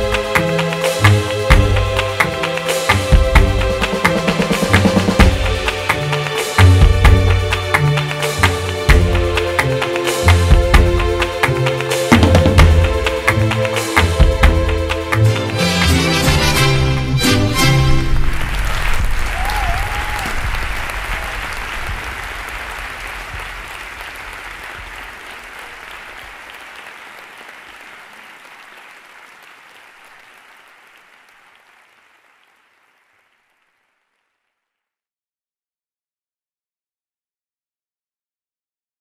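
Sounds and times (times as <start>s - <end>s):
music: 0.0s - 19.6s
audience applause: 0.0s - 34.5s.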